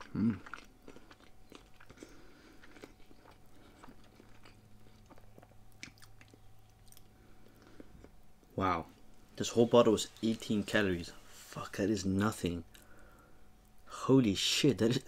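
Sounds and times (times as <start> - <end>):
person chewing food: 0.0 - 8.2.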